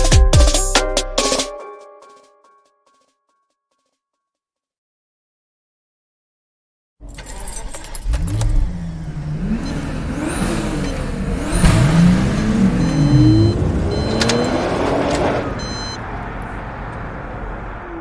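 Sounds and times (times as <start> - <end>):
cars driving past at speed: 8.5 - 18.0.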